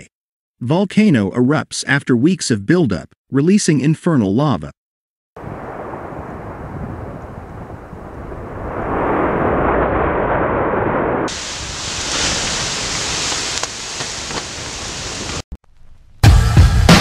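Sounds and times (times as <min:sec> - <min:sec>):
volcanic eruption rushing: 0:05.4 - 0:15.5
bright hiss: 0:11.3 - 0:15.4.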